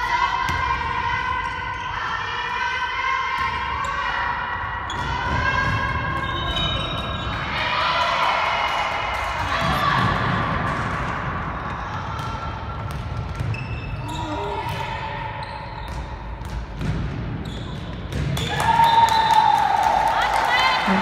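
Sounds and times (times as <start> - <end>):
ball bouncing on hall floor: 4.8 - 7.4, 9.2 - 19.5.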